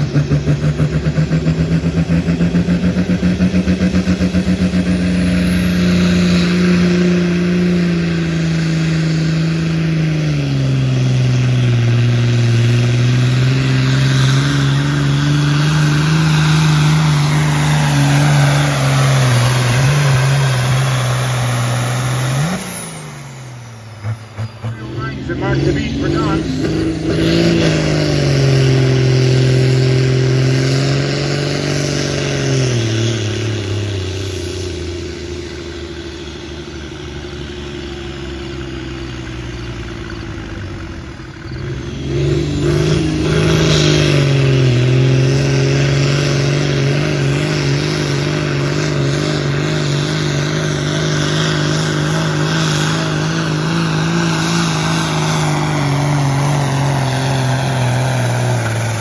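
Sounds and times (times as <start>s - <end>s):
tractor diesel engine revving: 0.0s - 59.0s.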